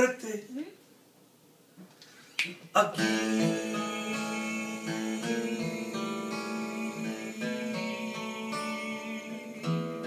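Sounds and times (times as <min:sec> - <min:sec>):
acoustic guitar chords: 0:02.7 - 0:10.0.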